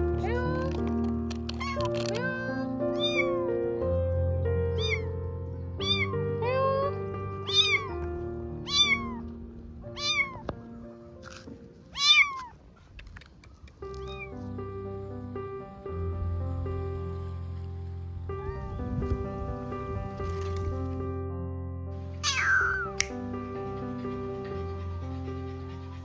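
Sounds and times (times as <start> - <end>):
soft background music: 0.0 - 12.8, 13.5 - 26.0
kitten meowing: 1.5 - 3.5, 4.7 - 5.2, 5.8 - 8.0, 8.6 - 9.3, 10.0 - 10.5, 11.9 - 12.6, 13.9 - 14.4, 18.4 - 18.8, 22.2 - 23.1.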